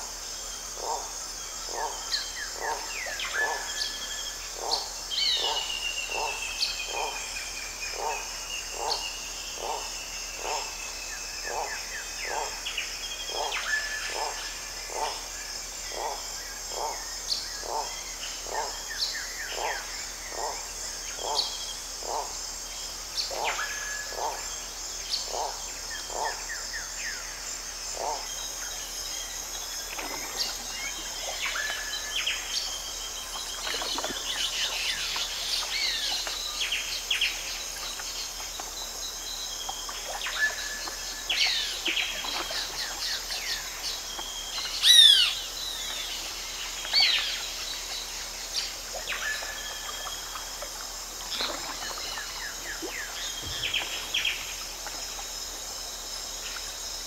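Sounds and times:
high insect hum: 0.0s - 57.0s
birds calling and chirping: 40.1s - 50.2s, 51.4s - 54.5s.

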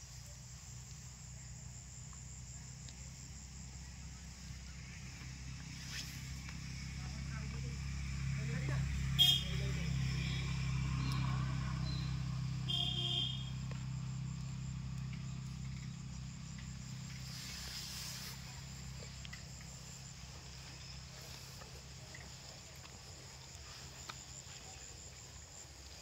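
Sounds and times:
insects chirring: 0.0s - 26.0s
vehicle engine rumble: 0.0s - 26.0s
short horn toot: 9.2s - 9.5s, 12.7s - 13.5s.

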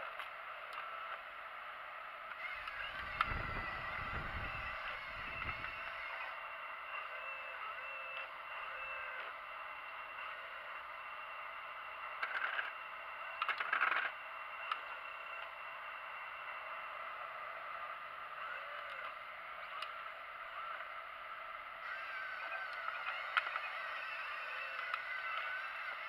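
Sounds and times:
model excavator motor whine: 0.0s - 26.0s
rough motor bursts: 2.4s - 8.1s, 21.8s - 26.0s.

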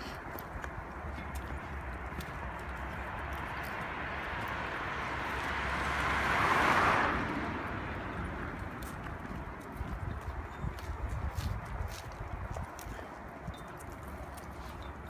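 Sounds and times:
car driving past: 3.8s - 8.8s.

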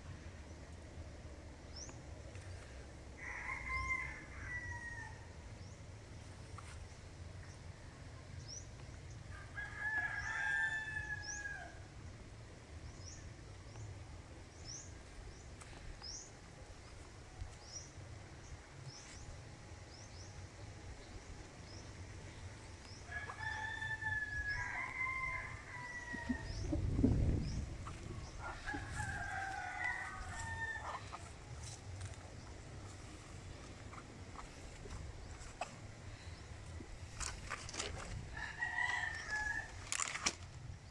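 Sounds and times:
roosters crowing: 3.1s - 5.5s, 9.2s - 11.9s, 22.9s - 32.5s, 37.2s - 40.2s
low rumble of wind on microphone: 4.6s - 40.9s.

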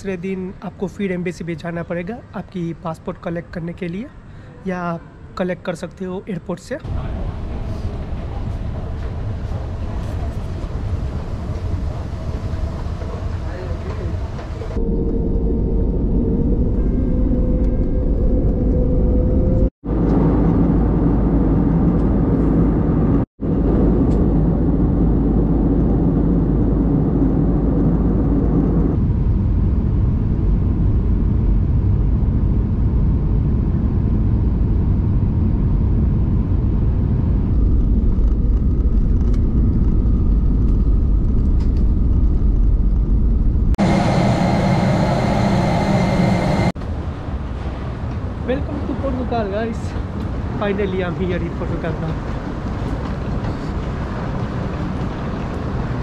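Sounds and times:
jet engine cabin rumble: 6.8s - 56.0s
bright engine hum: 43.8s - 46.8s.

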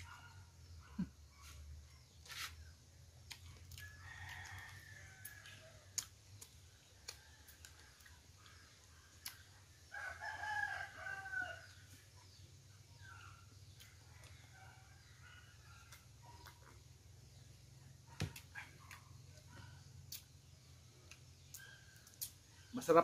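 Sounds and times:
rooster crowing: 3.8s - 5.9s, 9.9s - 11.8s.

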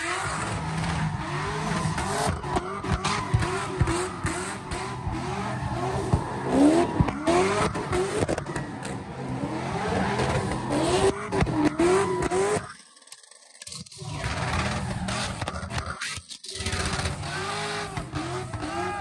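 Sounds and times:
tyres screeching on pavement: 0.0s - 12.7s
car engines revving hard: 0.0s - 12.8s, 13.7s - 19.0s.

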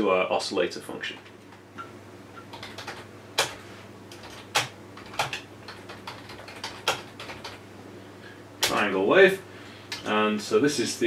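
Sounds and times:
typing on computer keyboard: 2.5s - 7.6s.

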